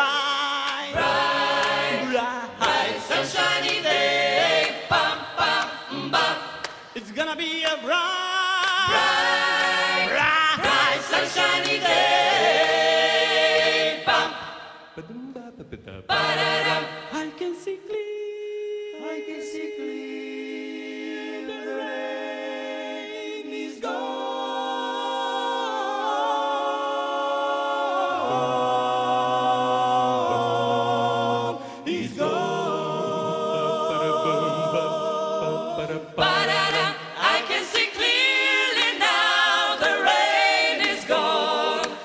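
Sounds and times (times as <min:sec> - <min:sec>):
a cappella group singing chords: 0:00.0 - 0:15.2, 0:16.0 - 0:42.0
low bass voice: 0:15.0 - 0:16.0.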